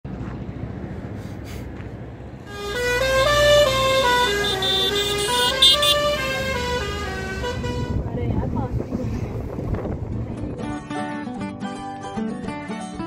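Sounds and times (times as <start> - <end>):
vehicle engine rumble: 0.0 - 10.8
musical vehicle horn playing tune: 2.4 - 8.0.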